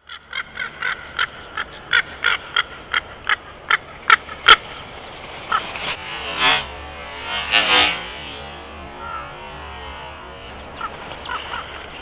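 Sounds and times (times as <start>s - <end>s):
bird calling: 0.0s - 6.0s, 8.6s - 12.0s.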